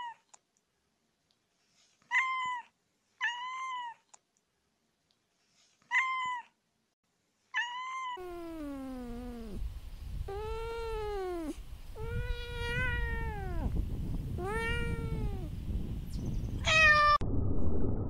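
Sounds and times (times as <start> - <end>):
cat meowing: 2.1 - 4.1, 5.9 - 6.6, 7.6 - 9.6, 10.3 - 13.8, 14.4 - 15.5, 16.6 - 17.2.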